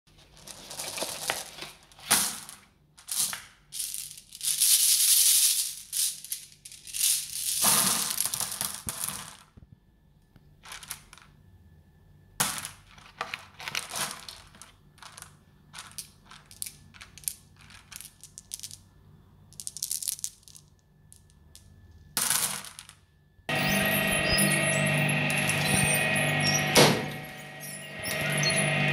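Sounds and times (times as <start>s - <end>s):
glass marbles rattling in plastic bowl: 3.1s - 9.4s, 13.6s - 18.9s, 19.6s - 21.6s.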